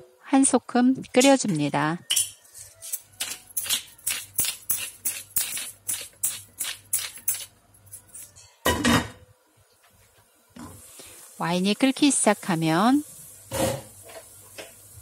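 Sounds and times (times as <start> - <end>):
pepper grinder crackling: 2.8 - 8.3.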